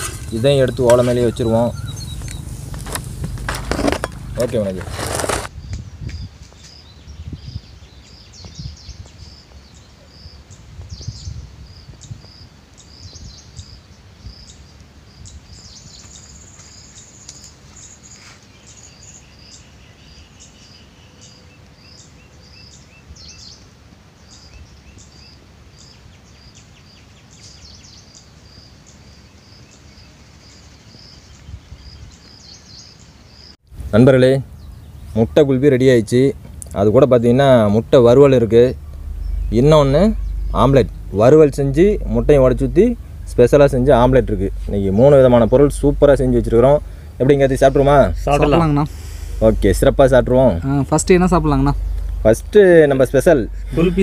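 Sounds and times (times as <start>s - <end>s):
low rumble: 0.0s - 6.3s, 33.7s - 54.0s
bird calls: 0.0s - 33.6s, 34.4s - 54.0s.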